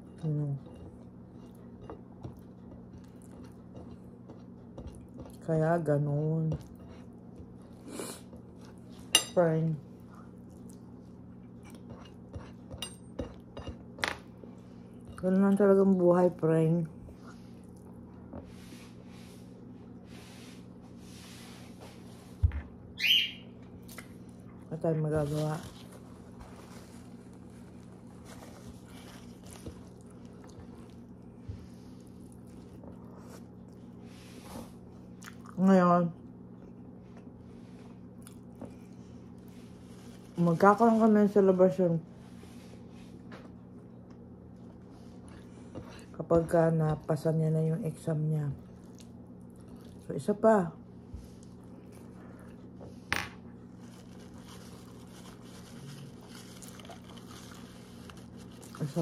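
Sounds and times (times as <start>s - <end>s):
steady low hum: 0.0s - 59.0s
wet chewing: 0.8s - 5.5s, 48.7s - 50.1s.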